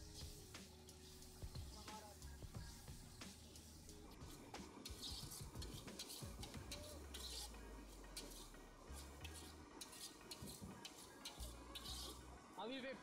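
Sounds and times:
metal spatula scraping pan: 0:04.1 - 0:12.3.

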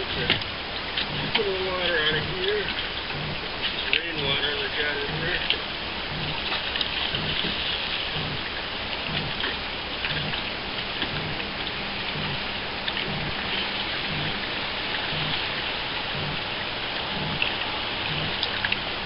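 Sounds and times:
soft low pulse: 0:00.0 - 0:19.0
water splashing: 0:00.0 - 0:19.0
faint ticks: 0:05.1 - 0:16.5, 0:17.1 - 0:18.8.

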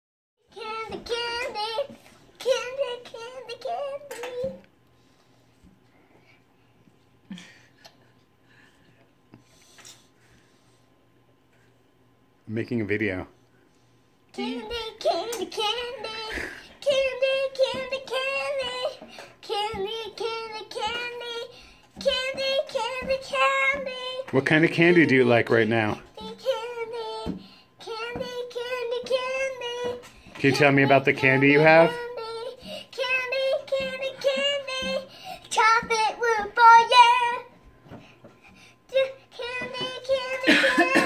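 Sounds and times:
boy singing in a high voice: 0:00.5 - 0:04.6, 0:14.4 - 0:25.1, 0:26.0 - 0:37.6, 0:38.9 - 0:41.0.

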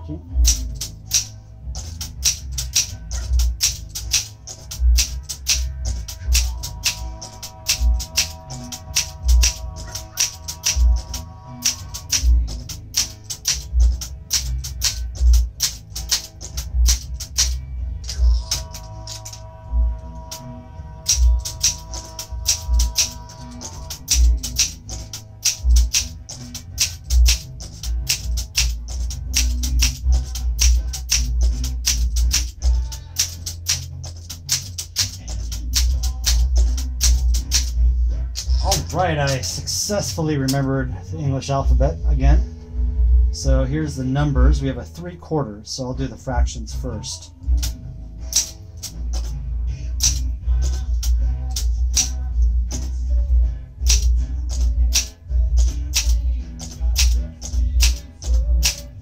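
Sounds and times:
manual typewriter typing: 0:00.4 - 0:19.4, 0:21.0 - 0:37.8, 0:38.4 - 0:40.7, 0:53.9 - 0:58.9.

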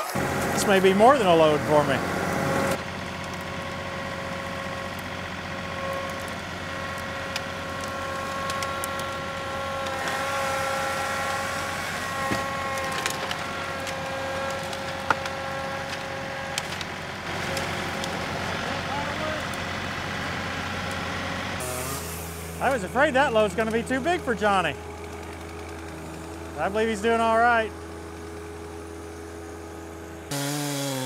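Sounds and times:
tractor diesel engine under load: 0:00.0 - 0:30.3
branches snapping: 0:05.9 - 0:18.7.

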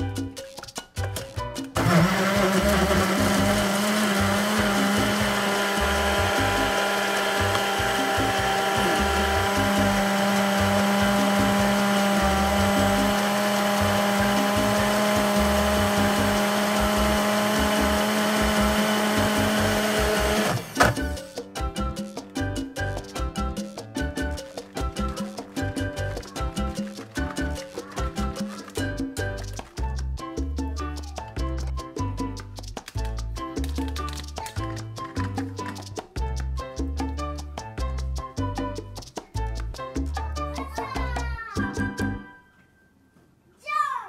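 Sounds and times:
electric mixer motor running: 0:01.8 - 0:21.2.

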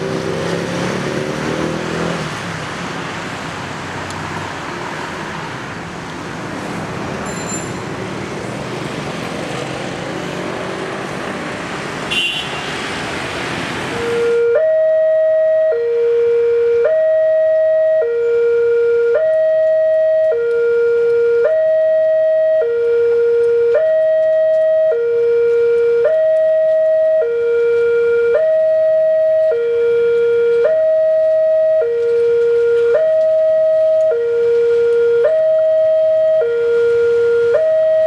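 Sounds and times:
level crossing two-tone alarm: 0:14.0 - 0:38.0.

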